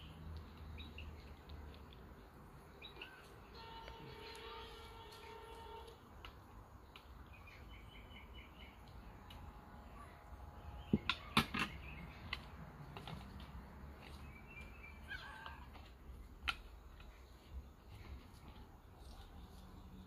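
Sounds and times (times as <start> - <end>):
birds calling: 2.6 - 5.8, 10.0 - 17.3.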